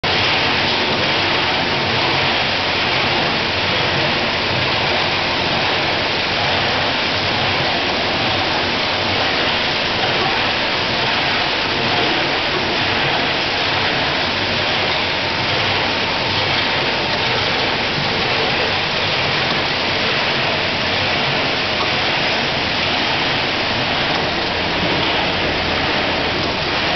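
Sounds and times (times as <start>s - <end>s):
water rushing and churning: 0.0s - 26.9s.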